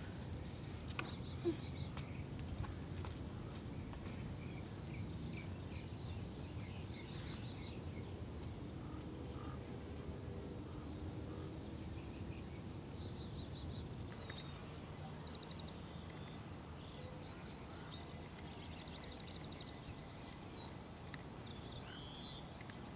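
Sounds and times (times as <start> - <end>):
songbird singing trills: 11.8 - 22.9.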